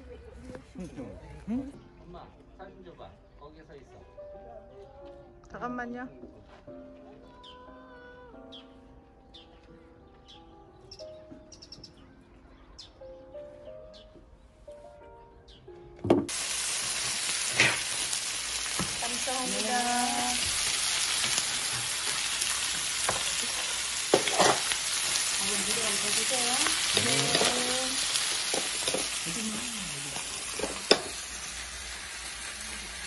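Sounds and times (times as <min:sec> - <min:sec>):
meat sizzling on hot plate: 0:16.3 - 0:33.0.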